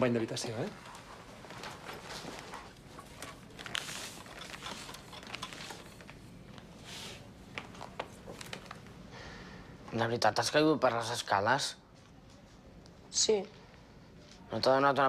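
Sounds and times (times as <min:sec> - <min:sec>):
soft rustles: 0:00.5 - 0:08.9.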